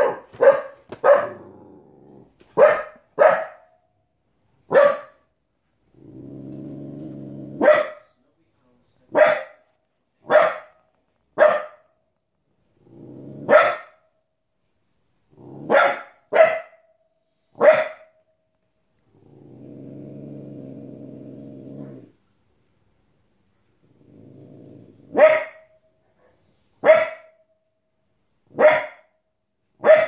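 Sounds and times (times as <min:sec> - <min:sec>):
puppy barking: 0:00.0 - 0:01.5, 0:02.5 - 0:03.8, 0:04.7 - 0:05.3, 0:07.6 - 0:08.1, 0:09.1 - 0:12.0, 0:13.5 - 0:14.1, 0:15.7 - 0:16.9, 0:17.6 - 0:18.2, 0:25.1 - 0:27.4, 0:28.5 - 0:29.2, 0:29.8 - 0:30.0
dog growling low: 0:01.2 - 0:02.4, 0:05.9 - 0:07.7, 0:12.7 - 0:13.5, 0:15.3 - 0:15.7, 0:19.0 - 0:22.2, 0:23.8 - 0:25.2.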